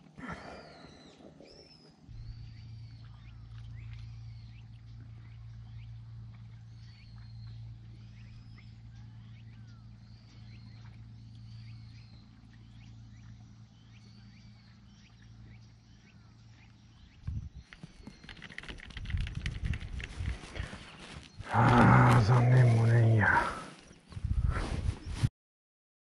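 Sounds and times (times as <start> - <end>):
steady low hum: 0.0 - 24.6
faint high chirping calls: 0.3 - 19.6
sharp knocks and rattles: 17.3 - 20.4.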